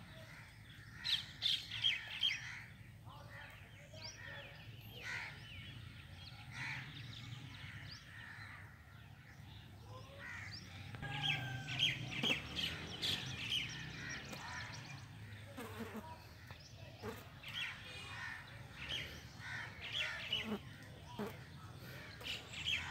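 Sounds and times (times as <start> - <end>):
birds chirping: 0.0 - 22.9
crows cawing: 10.2 - 15.5, 18.1 - 20.5.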